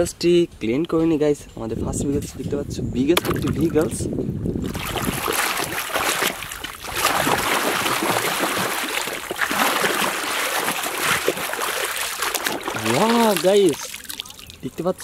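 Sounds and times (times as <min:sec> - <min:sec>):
water sloshing and splashing: 0:03.2 - 0:14.9.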